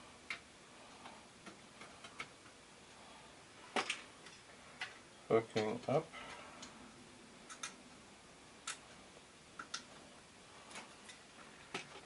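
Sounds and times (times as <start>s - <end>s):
faint ticking clicks: 8.6s - 9.9s.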